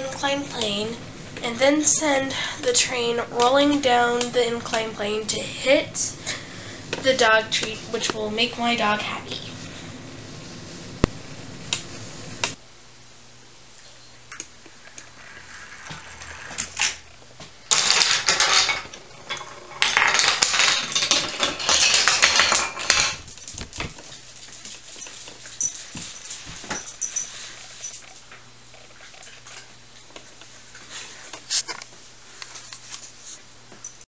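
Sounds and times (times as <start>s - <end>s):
wooden dominoes toppling: 14.9s - 17.0s, 17.7s - 25.6s.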